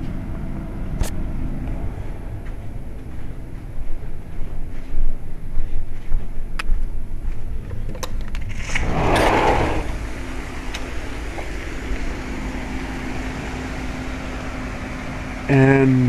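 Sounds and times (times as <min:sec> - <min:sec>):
heat pump unit droning: 0:00.0 - 0:16.0
outdoor hum: 0:00.0 - 0:16.0
sliding glass door scraping open: 0:08.4 - 0:10.1.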